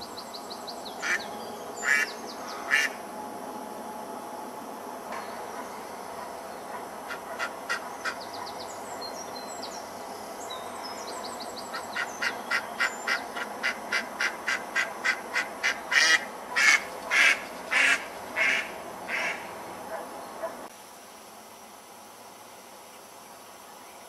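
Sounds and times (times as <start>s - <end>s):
duck quacking: 1.0s - 1.2s, 1.8s - 3.0s, 6.7s - 8.2s, 12.0s - 20.0s.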